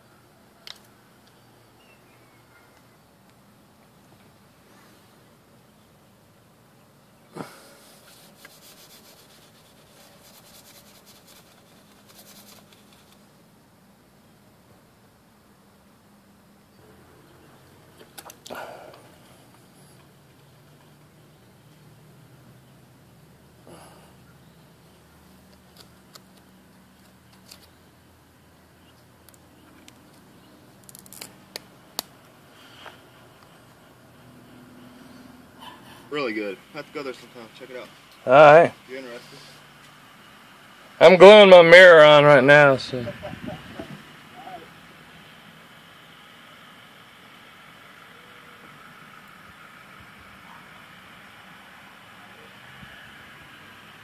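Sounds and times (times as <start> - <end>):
applicator scrubbing on glass: 7.9 - 13.1.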